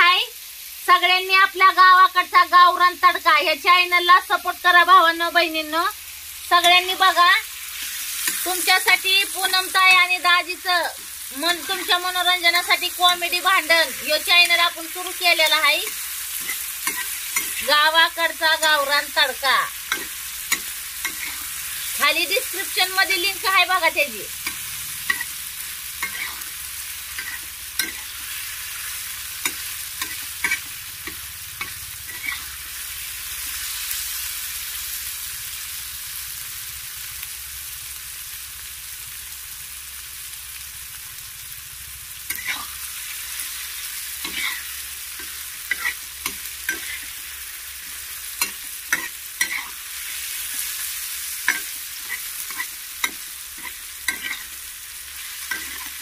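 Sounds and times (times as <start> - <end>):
vegetables sizzling in hot oil: 0.0 - 56.0
spatula scraping and knocking pan: 19.9 - 21.4.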